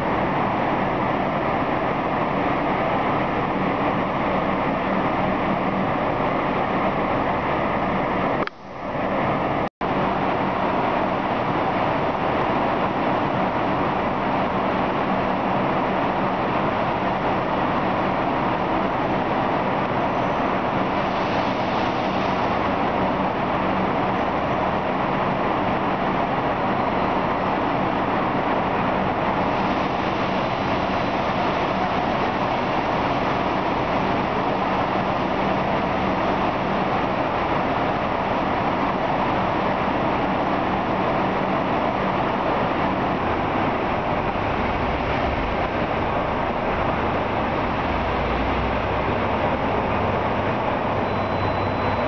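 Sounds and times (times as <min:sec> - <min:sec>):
diesel trains idling: 0:00.0 - 0:52.0
low engine hum: 0:28.4 - 0:52.0.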